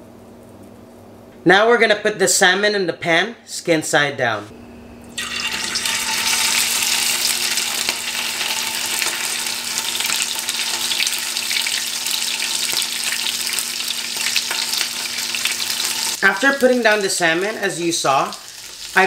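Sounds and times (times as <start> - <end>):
fish sizzling in hot pan: 5.2 - 17.5, 18.1 - 19.0.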